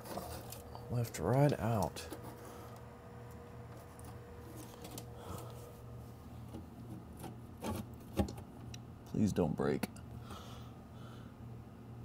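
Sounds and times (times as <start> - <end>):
low steady hum: 0.0 - 12.0
sheet-metal panel clicks and scrapes: 6.5 - 8.4.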